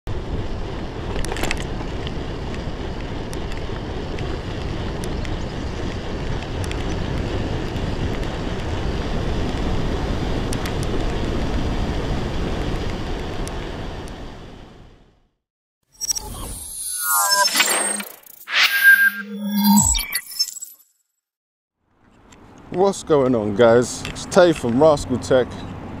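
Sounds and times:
wind buffeting microphone: 0.1s - 14.4s.

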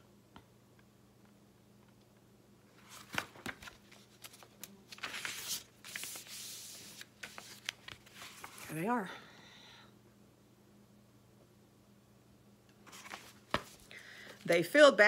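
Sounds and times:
book pages turning: 2.8s - 8.9s, 12.8s - 14.7s.

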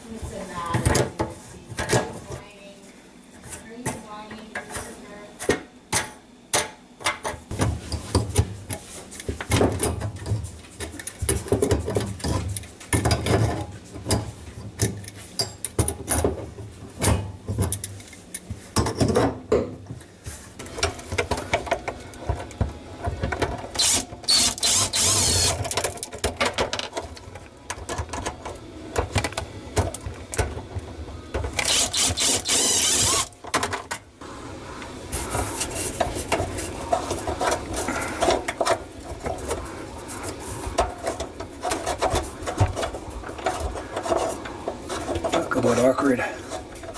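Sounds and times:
plastic drain pipes knocking and rattling: 9.3s - 15.0s.

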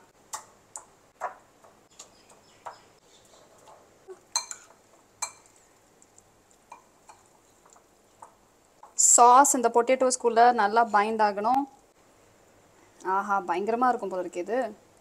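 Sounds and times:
utensils clinking against ceramic bowl: 4.3s - 5.5s.

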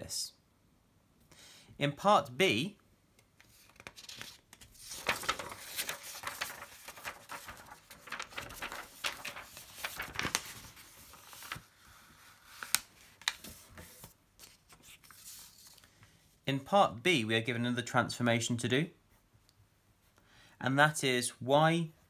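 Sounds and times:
paper rustling and sliding: 3.4s - 15.9s.

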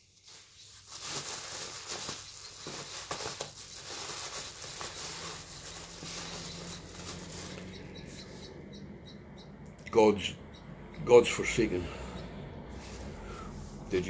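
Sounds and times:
hands rummaging through cds: 0.2s - 7.7s
packaging crinkling: 0.2s - 7.7s.

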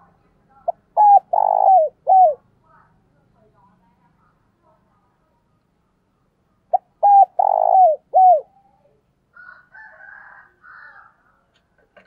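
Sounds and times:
dove cooing: 0.7s - 2.4s, 6.7s - 8.7s.

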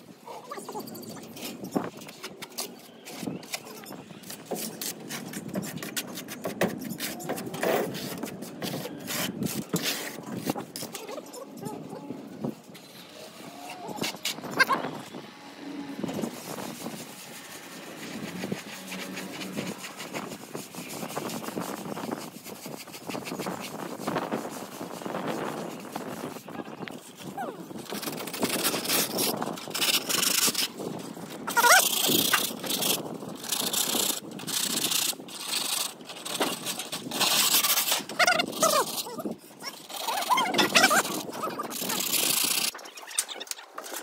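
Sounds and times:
hand float scratching on render: 0.3s - 44.0s
high wavering whine: 12.2s - 20.0s.

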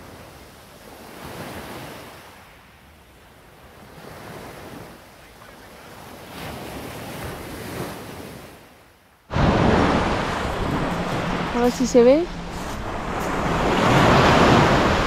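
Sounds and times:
sea waves breaking on beach: 0.0s - 8.7s, 9.3s - 15.0s
wind on microphone: 9.3s - 15.0s.

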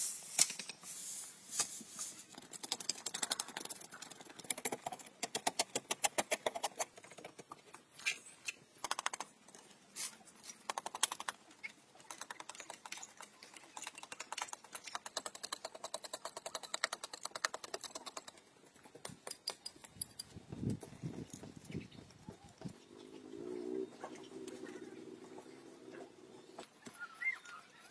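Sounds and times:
hand tools scraping dry earth: 0.0s - 11.0s.

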